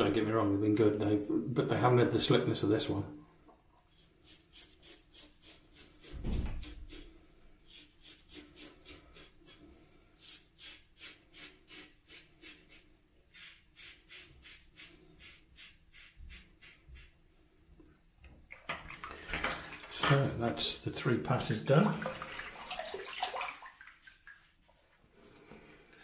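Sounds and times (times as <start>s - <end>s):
razor scraping stubble: 10.2s - 17.1s.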